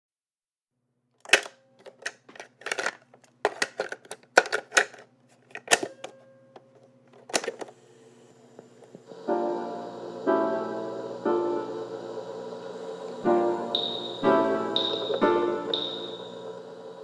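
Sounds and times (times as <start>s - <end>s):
faint steady hum: 6.0s - 17.0s.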